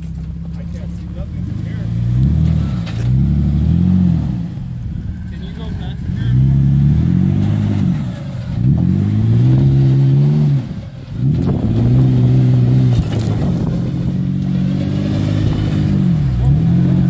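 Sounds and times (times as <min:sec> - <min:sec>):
engine revving under load: 0:00.6 - 0:17.0.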